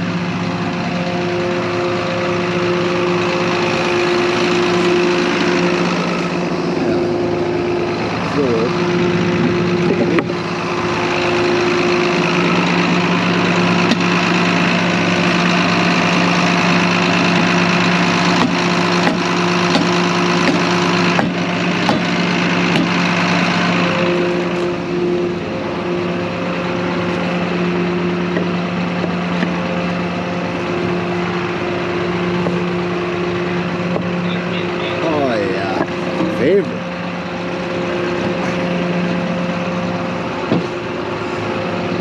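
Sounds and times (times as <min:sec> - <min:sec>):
tractor engine running: 0:00.0 - 0:42.0.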